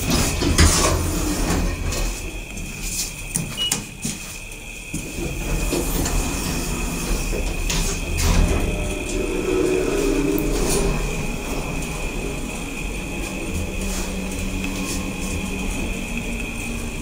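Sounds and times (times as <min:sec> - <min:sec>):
elevator hum and whine: 0:00.0 - 0:17.0
elevator clicks: 0:03.3 - 0:04.0.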